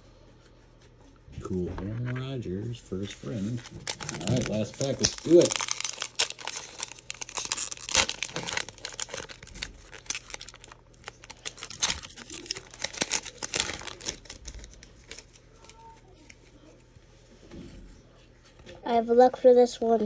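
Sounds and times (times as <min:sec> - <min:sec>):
foil wrapper crinkling and tearing: 0:03.2 - 0:16.5.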